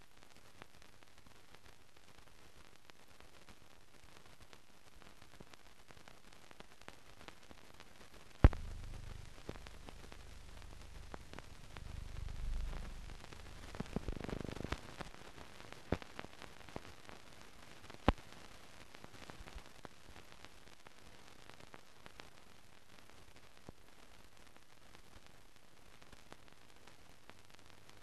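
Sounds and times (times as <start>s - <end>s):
film surface hiss with clicks: 0.0s - 28.0s
sharp pop: 8.4s - 10.1s
low rumble: 8.5s - 14.1s.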